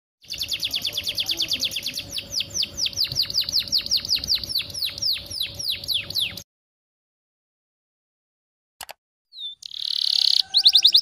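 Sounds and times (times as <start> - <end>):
canary singing: 0.2 - 6.4, 9.3 - 11.0.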